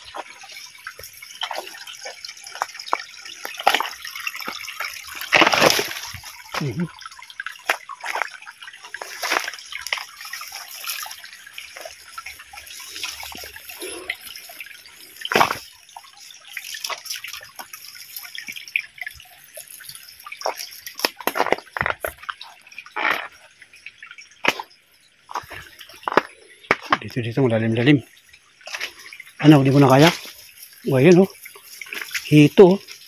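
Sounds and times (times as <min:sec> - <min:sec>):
sharp splashes and knocks: 0:00.0 - 0:23.5, 0:24.4 - 0:27.1
stream trickling over stones: 0:00.0 - 0:33.0.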